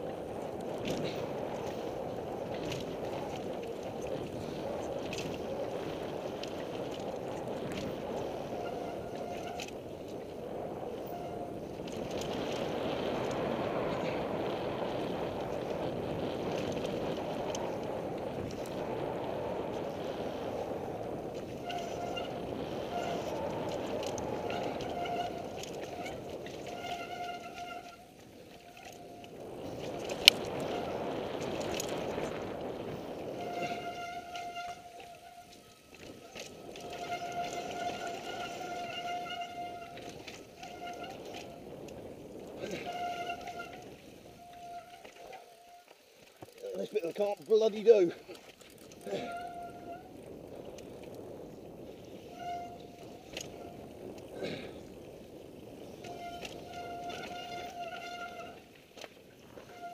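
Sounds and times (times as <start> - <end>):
wind and tyre rumble: 0.0 - 59.9
disc brakes squealing: 55.9 - 58.6.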